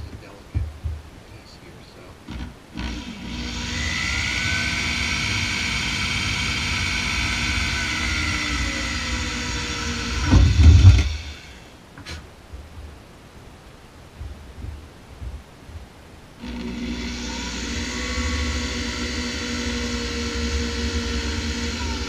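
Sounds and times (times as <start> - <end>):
electric drill whining: 2.3 - 11.7, 16.4 - 22.0.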